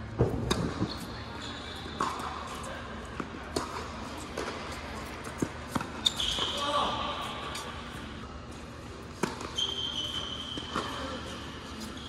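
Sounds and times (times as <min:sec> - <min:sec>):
tennis ball bouncing on court: 0:00.2 - 0:01.0, 0:02.0 - 0:06.5, 0:09.1 - 0:11.0
racket hitting tennis ball: 0:09.1 - 0:09.6.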